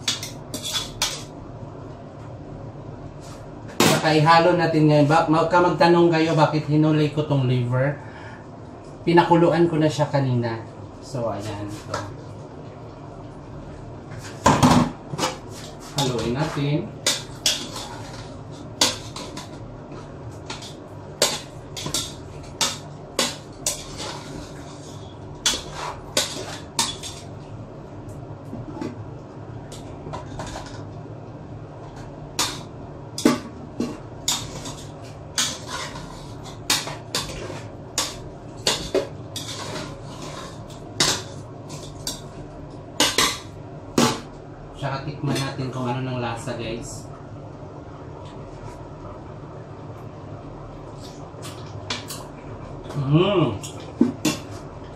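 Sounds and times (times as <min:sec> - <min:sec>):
utensil scraping in a pot: 0:00.1 - 0:01.3, 0:15.4 - 0:27.3, 0:33.8 - 0:42.4.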